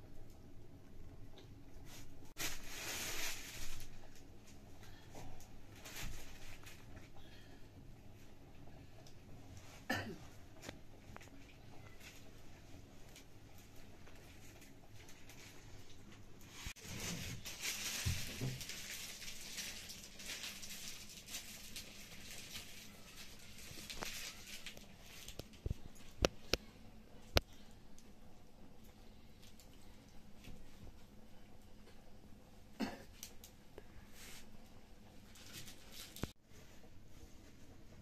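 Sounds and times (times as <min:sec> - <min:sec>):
person coughing: 0:09.9 - 0:10.3, 0:32.8 - 0:33.1
wood fire crackling: 0:10.6 - 0:36.4.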